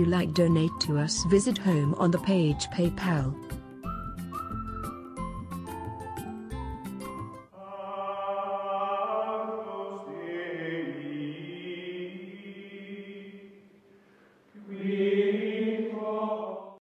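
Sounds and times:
choir-like chant music: 7.5 - 13.8, 14.6 - 16.8.

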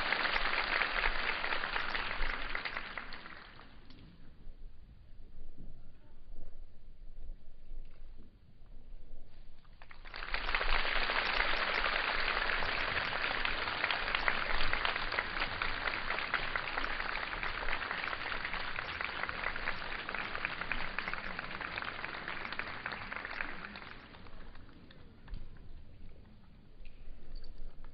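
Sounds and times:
audience applauding: 0.0 - 3.8, 9.9 - 25.0.

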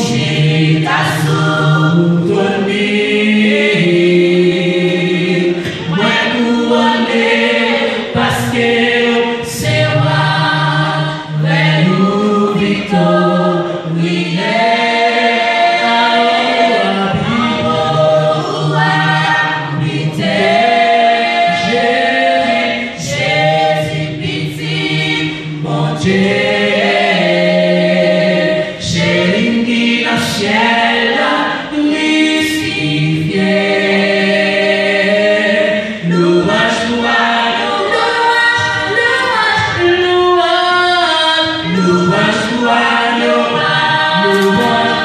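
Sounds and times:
women singing in harmony: 0.0 - 45.0.

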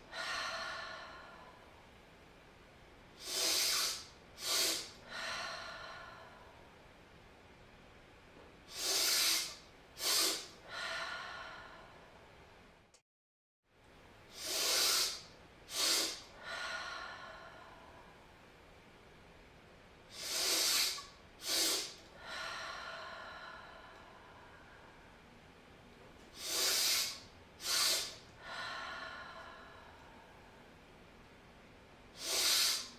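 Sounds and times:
person sniffing inhale: 3.2 - 5.1, 8.7 - 10.6, 14.3 - 16.5, 20.1 - 22.1, 26.3 - 29.9, 32.2 - 32.9.

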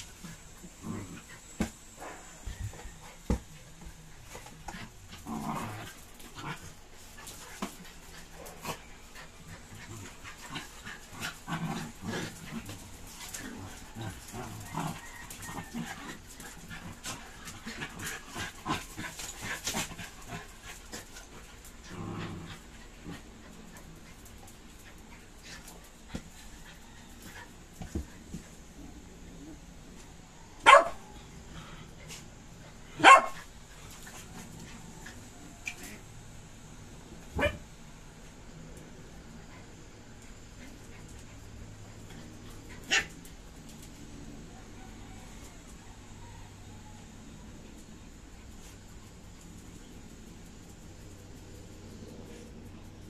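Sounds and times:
dogs growling: 0.0 - 2.4, 4.2 - 27.4
claws clicking on tile floor: 9.7 - 27.4
dog barking: 30.6 - 31.0, 33.0 - 33.4.

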